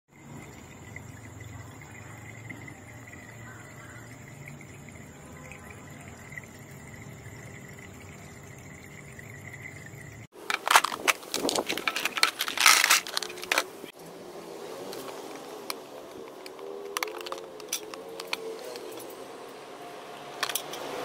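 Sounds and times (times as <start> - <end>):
water splashing into tank: 0.1 - 14.0
plastic box clicks and rattles: 10.4 - 13.7, 15.0 - 18.4.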